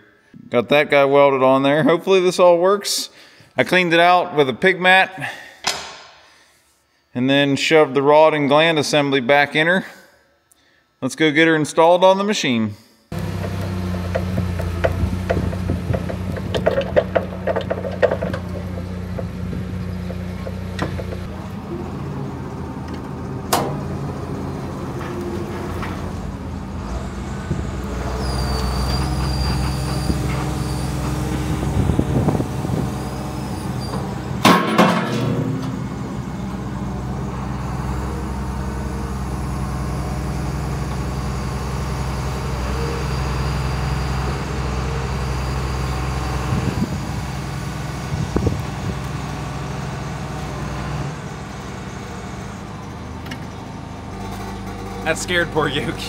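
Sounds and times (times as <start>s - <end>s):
diesel engine running: 13.1s - 56.0s
clicks and knocks: 13.4s - 21.3s.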